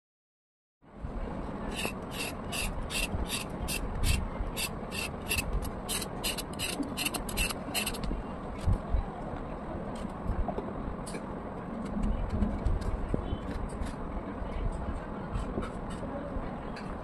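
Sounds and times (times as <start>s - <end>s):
knife scraping gourd skin: 1.7s - 8.0s.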